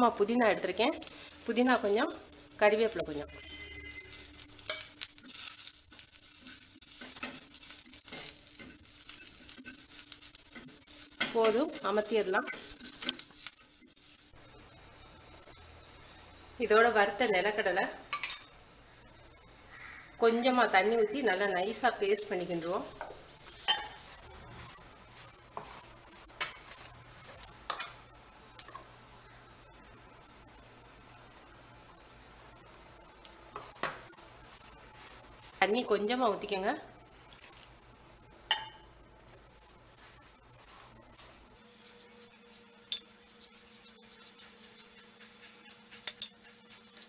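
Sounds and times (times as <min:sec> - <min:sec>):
onions sizzling in a pan: 0:00.0 - 0:14.4, 0:21.6 - 0:47.0
spatula scraping a pan: 0:02.7 - 0:14.3, 0:23.4 - 0:27.9, 0:39.3 - 0:47.0
hand rubbing flour in bowl: 0:39.3 - 0:47.0.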